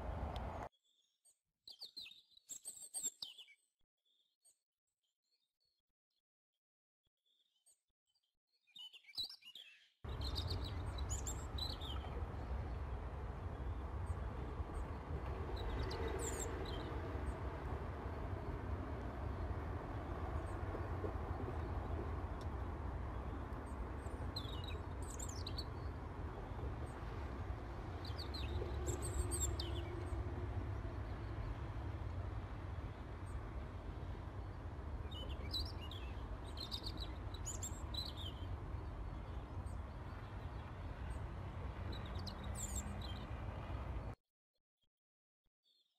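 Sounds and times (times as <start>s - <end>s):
low outdoor rumble: 0.0s - 0.7s, 10.1s - 44.2s
small birds chirping: 8.7s - 44.1s.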